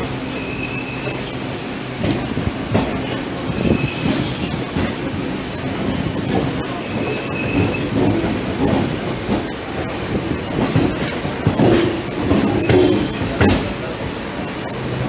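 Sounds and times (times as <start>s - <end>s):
train wheels clicking on rails: 0.0s - 15.0s
high wheel squeal: 0.3s - 1.4s, 3.0s - 4.6s, 6.7s - 8.0s, 12.4s - 13.4s.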